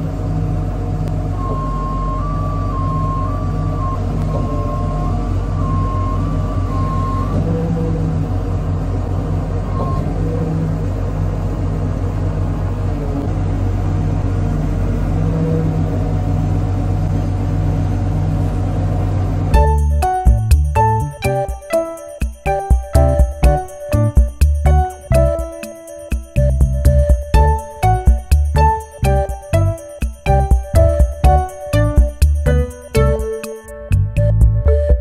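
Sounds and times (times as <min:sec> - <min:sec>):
diesel engine drone: 0:00.0 - 0:35.0
music: 0:19.5 - 0:35.0.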